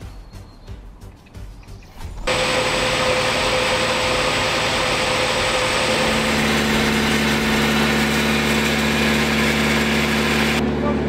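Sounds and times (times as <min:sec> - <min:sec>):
water pump humming: 0:02.3 - 0:10.6.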